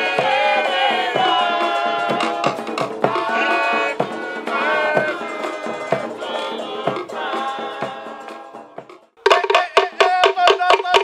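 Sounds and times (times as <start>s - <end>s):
percussion hits: 0.0s - 11.0s.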